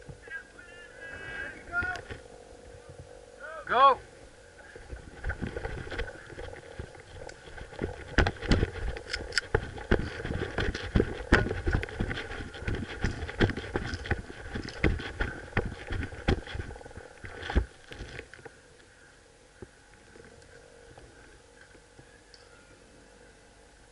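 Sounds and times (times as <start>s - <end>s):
footsteps on grass: 4.7s - 18.2s.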